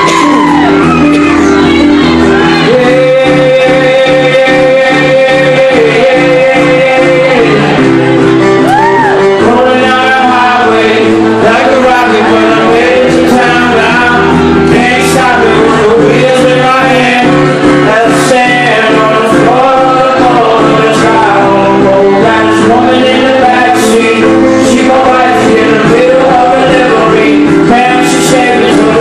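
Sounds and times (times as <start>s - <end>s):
acoustic guitar: 0.0s - 29.0s
man singing: 0.0s - 29.0s.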